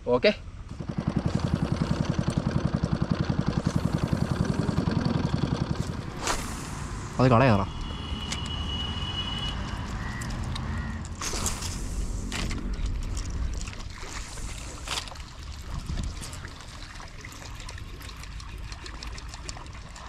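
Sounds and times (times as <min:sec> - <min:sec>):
water lapping around boat: 0:00.8 - 0:20.0
low rumble: 0:03.3 - 0:17.2
water splashing: 0:03.6 - 0:20.0.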